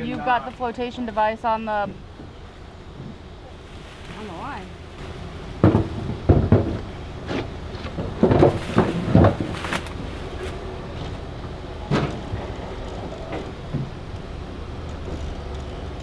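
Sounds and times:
low rumble: 0:00.8 - 0:16.0
knocks and clunks of gear: 0:05.6 - 0:11.2, 0:11.8 - 0:16.0.

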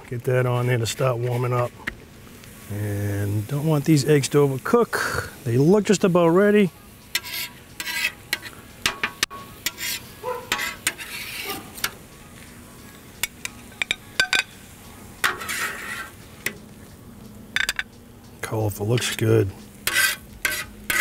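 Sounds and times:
faint sizzle: 0:00.0 - 0:21.0
metal spatula scraping griddle: 0:07.1 - 0:12.5, 0:13.2 - 0:16.7, 0:18.8 - 0:21.0.

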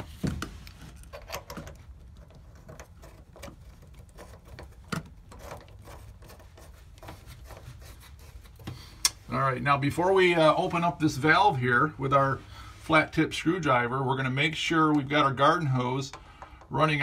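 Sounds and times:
metallic clicks and scrapes: 0:00.0 - 0:09.2.

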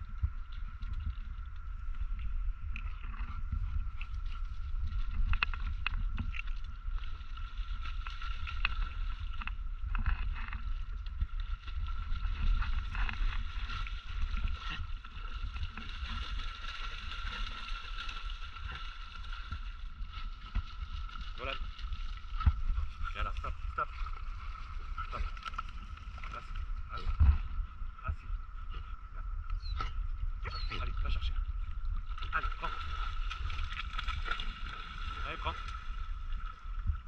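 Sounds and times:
wind on microphone: 0:00.0 - 0:37.0
dogs splashing in water: 0:11.9 - 0:25.5, 0:32.2 - 0:36.0.

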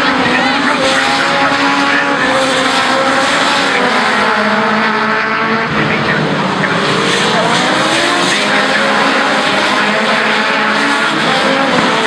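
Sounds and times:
racing truck engines: 0:00.0 - 0:12.0.

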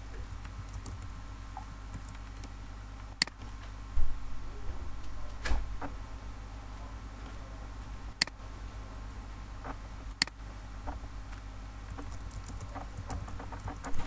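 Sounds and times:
steady low hum: 0:00.0 - 0:14.0
keyboard keystrokes and clicks: 0:00.4 - 0:01.1, 0:01.9 - 0:02.5, 0:11.9 - 0:14.0.

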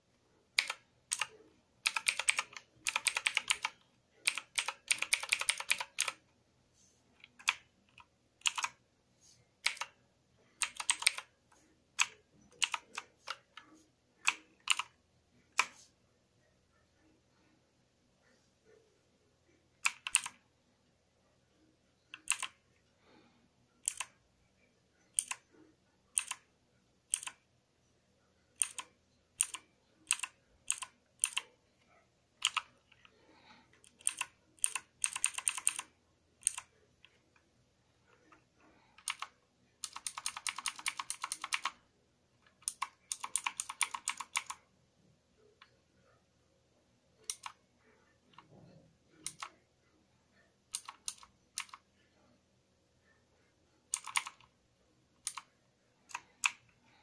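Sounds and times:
mechanical keyboard keystrokes: 0:00.6 - 0:06.2, 0:07.3 - 0:08.8, 0:09.6 - 0:10.0, 0:10.6 - 0:11.3, 0:12.0 - 0:13.5, 0:14.2 - 0:14.9, 0:19.8 - 0:20.4, 0:22.1 - 0:22.6, 0:23.8 - 0:24.1, 0:25.2 - 0:25.4, 0:26.2 - 0:26.4, 0:27.1 - 0:27.4, 0:28.6 - 0:31.4, 0:32.4 - 0:32.6, 0:33.8 - 0:36.7, 0:39.0 - 0:41.8, 0:42.6 - 0:44.6, 0:47.3 - 0:47.6, 0:49.2 - 0:49.5, 0:50.7 - 0:51.8, 0:53.9 - 0:54.5, 0:55.2 - 0:55.5.

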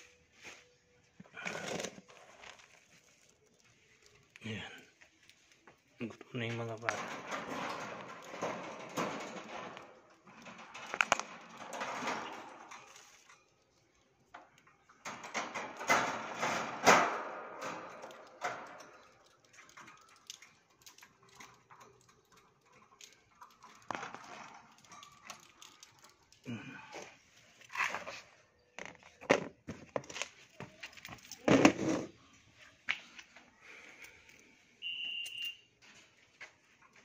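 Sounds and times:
seed rattling and rustling: 0:01.4 - 0:06.9, 0:08.1 - 0:13.3, 0:19.2 - 0:26.4
wire cage clicks: 0:06.5 - 0:26.4.

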